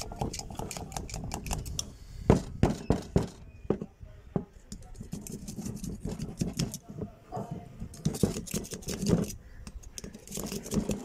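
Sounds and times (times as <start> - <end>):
screwdriver scraping metal: 0.0 - 1.9, 4.7 - 6.9, 7.8 - 11.0.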